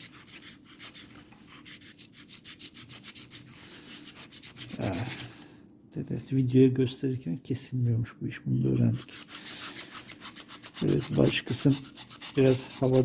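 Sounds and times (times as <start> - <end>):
knife sawing through foam board: 0.0 - 5.3, 9.0 - 13.0.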